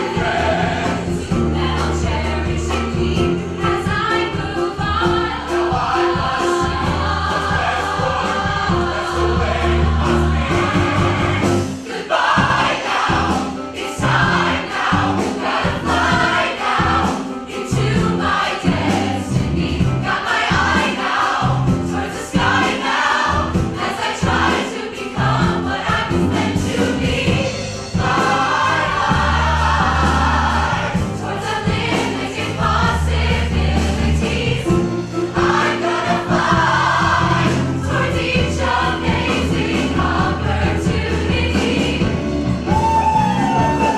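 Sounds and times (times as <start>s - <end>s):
drum beat: 0.0s - 34.7s
choir singing: 0.0s - 43.9s
piano: 0.0s - 43.9s
bass guitar: 38.7s - 43.9s.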